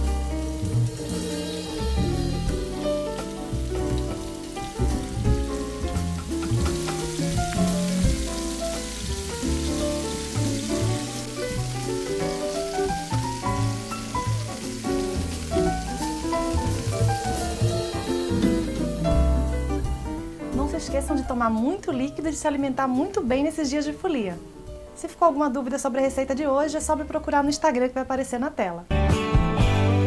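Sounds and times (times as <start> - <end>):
fish sizzling in a pan: 0.0 - 22.7
instrumental background music: 0.0 - 30.0.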